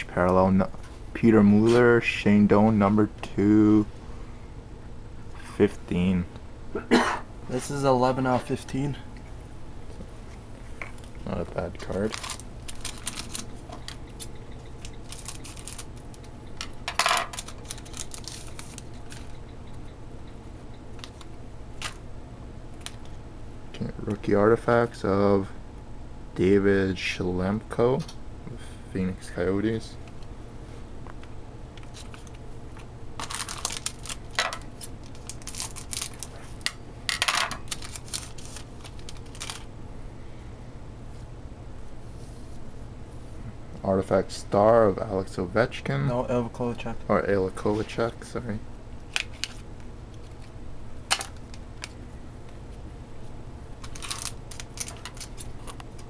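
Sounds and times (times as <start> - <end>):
steady low hum: 0.0 - 56.0
cards clicking and rustling: 10.8 - 19.3, 21.0 - 22.0, 31.8 - 39.7, 49.1 - 50.5, 51.1 - 52.0, 53.8 - 56.0.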